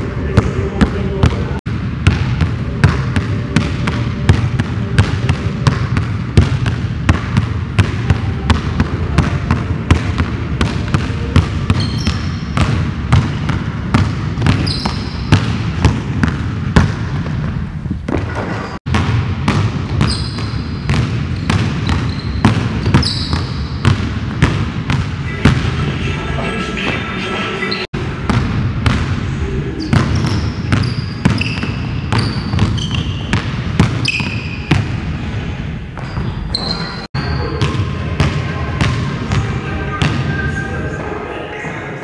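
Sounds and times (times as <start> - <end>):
basketballs bouncing on hardwood: 0.4 - 25.7, 28.2 - 29.2, 29.9 - 35.1
sneaker squeaks: 11.4 - 13.4, 14.4 - 15.6, 18.0 - 18.8, 20.0 - 24.0, 29.8 - 34.9, 36.0 - 37.9.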